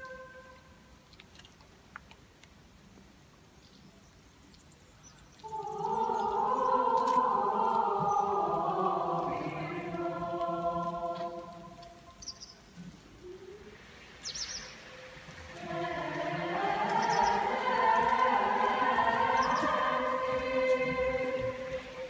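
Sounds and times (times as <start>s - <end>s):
choir of young voices singing: 0.0s - 0.7s, 5.4s - 12.2s, 14.7s - 22.0s
faint clicks: 0.0s - 3.1s.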